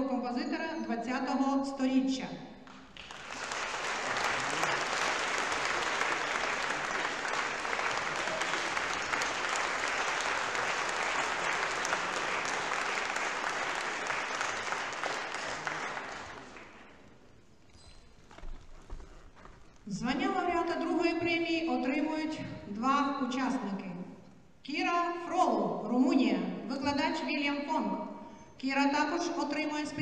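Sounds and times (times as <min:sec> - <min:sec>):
audience applauding: 0:02.7 - 0:17.0.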